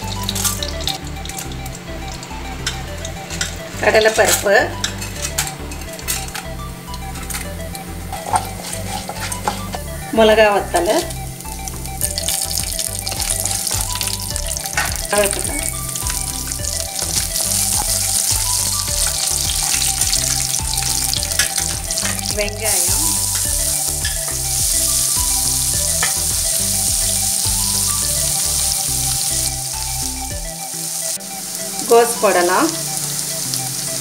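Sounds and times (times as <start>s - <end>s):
hot oil sizzling: 0.0s - 34.0s
wooden spatula stirring: 4.8s - 10.0s, 12.1s - 27.5s.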